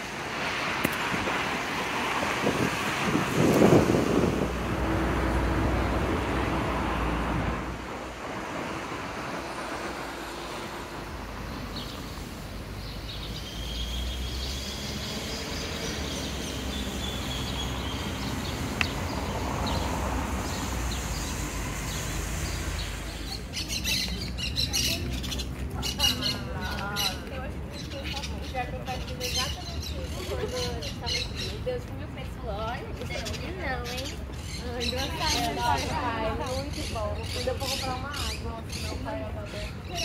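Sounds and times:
city traffic rumble: 0.0 - 40.0
birds chirping: 9.4 - 40.0.

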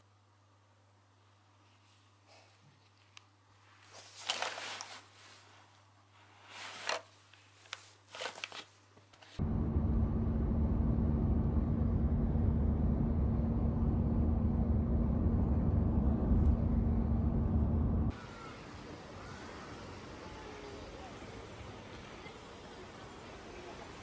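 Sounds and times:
cloth and tote bag rustling: 3.7 - 9.4
car driving on highway: 9.4 - 18.2
steady hum: 9.4 - 18.2.

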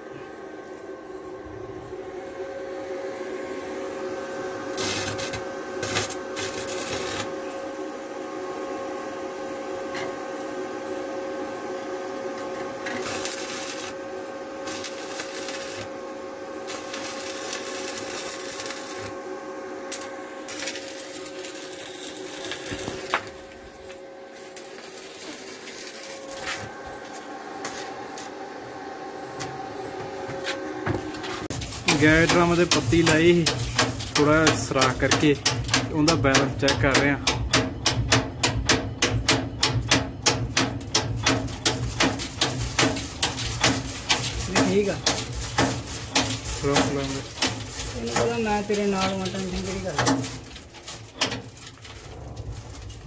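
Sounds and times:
steady hum: 0.0 - 53.0
welding arc crackling: 4.7 - 7.8, 12.4 - 28.3, 31.4 - 38.2, 39.7 - 53.0.

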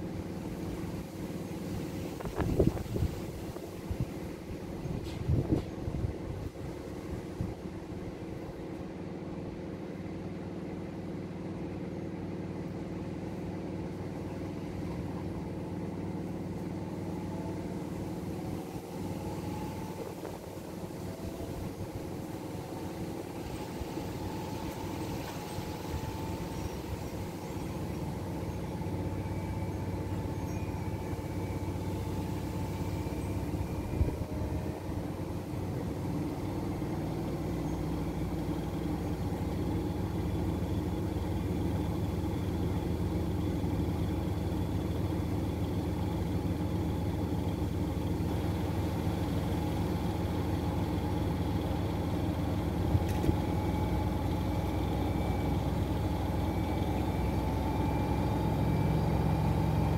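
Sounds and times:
washing machines spinning: 0.0 - 59.9.

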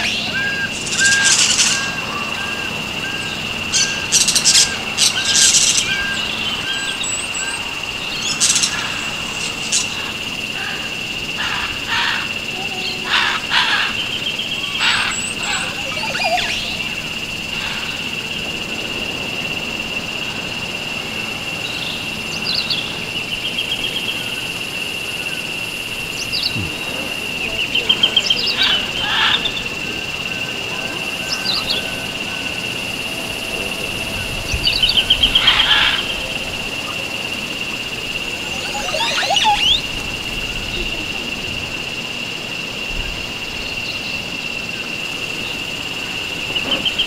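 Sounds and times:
high-pitched hum: 0.0 - 10.3, 14.4 - 18.0, 26.1 - 28.5, 29.4 - 41.2
birds chirping and trilling: 0.0 - 18.6, 21.2 - 40.9.

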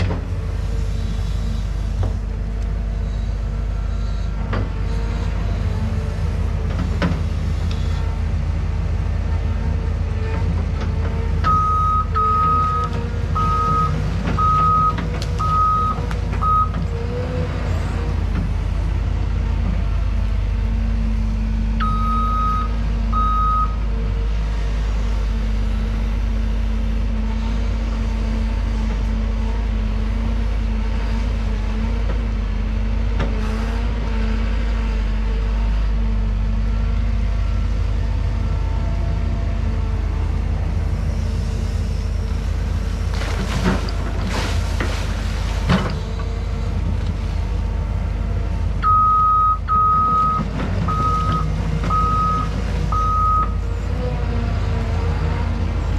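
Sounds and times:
excavator diesel engine running: 0.0 - 55.9
warning alarm beeps: 21.8 - 23.8, 48.8 - 53.6.

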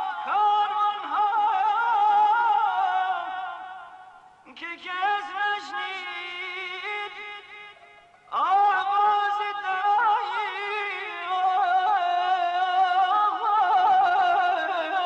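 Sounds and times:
solo voice singing: 0.0 - 15.0.

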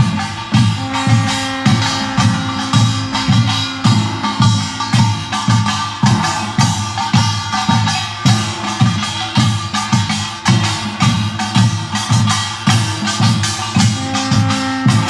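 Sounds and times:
drums beating steady pulse: 0.0 - 15.0
small gongs clanging: 0.0 - 15.0.

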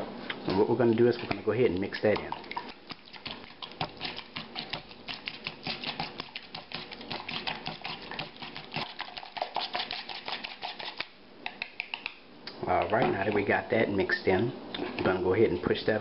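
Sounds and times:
egg sloshing: 0.0 - 15.6
whisk clicking against bowl: 1.1 - 12.2.

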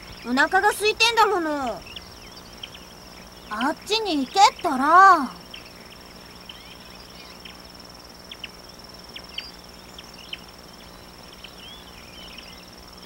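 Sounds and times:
high-pitched insect trill: 0.0 - 13.0.

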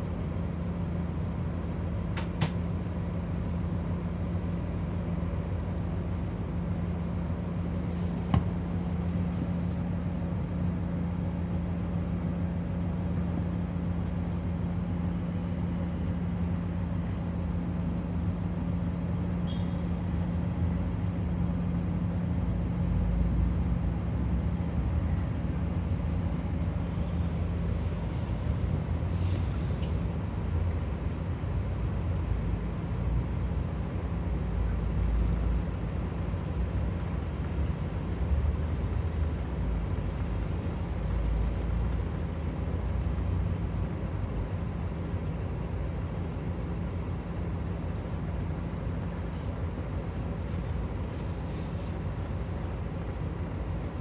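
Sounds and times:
minibus engine idling: 0.0 - 54.0.

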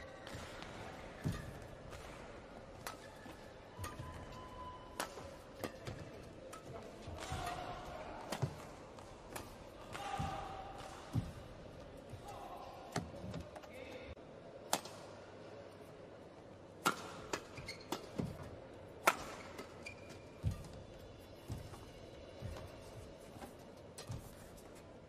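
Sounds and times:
rackets striking shuttlecock: 0.2 - 11.4, 16.8 - 19.8.

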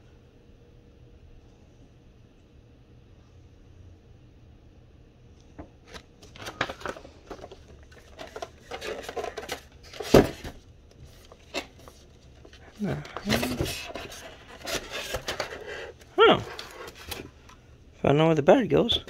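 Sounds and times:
paper rustling: 5.6 - 17.6.

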